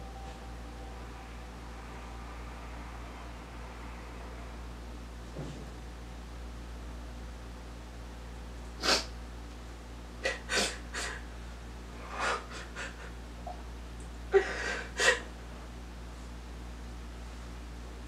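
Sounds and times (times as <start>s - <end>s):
woman crying and sniffling: 12.1s - 13.2s, 14.4s - 15.3s.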